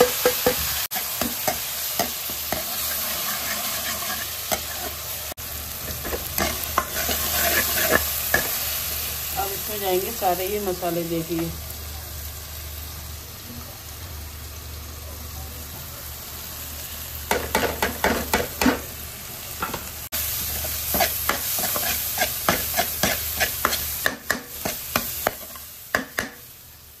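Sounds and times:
onions and spices sizzling: 0.0s - 27.0s
utensil scraping pan: 2.5s - 5.0s, 6.0s - 8.5s, 20.9s - 24.0s.

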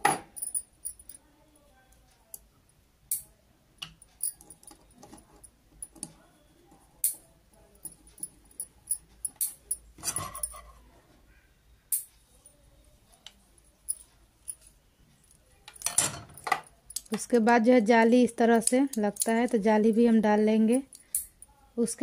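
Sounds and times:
small metal parts clicking: 3.1s - 6.2s, 7.8s - 10.7s, 15.3s - 17.3s, 18.5s - 19.7s, 20.7s - 21.5s
metal parts clattering: 8.9s - 10.7s, 15.7s - 16.7s.

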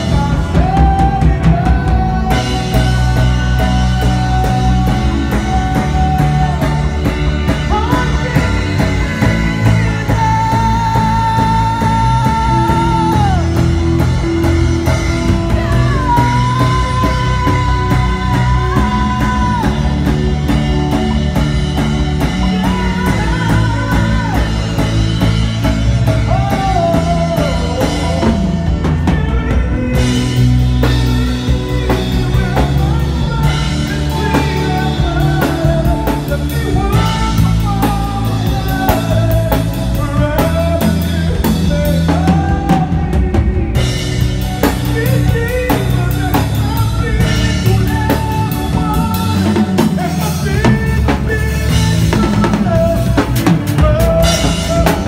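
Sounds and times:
drum kit: 0.0s - 55.0s
electric guitar: 0.0s - 55.0s
keyboard: 0.0s - 55.0s
person singing long sliding notes: 0.0s - 55.0s.

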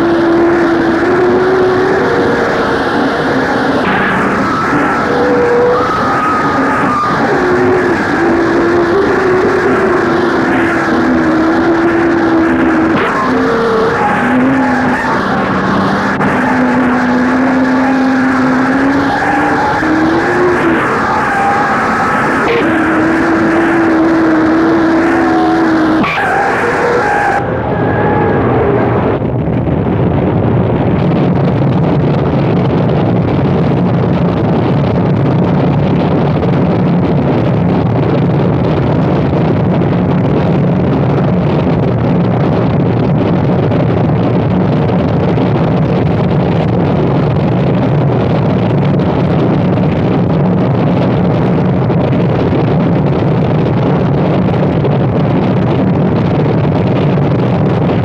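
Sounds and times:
high-pitched tone: 0.0s - 29.3s.

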